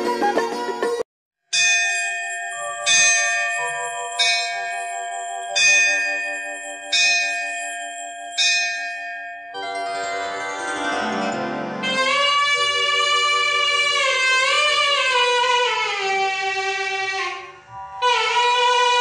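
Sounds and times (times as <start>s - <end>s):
plucked string music: 0.0s - 1.0s
bell ringing: 1.6s - 12.1s.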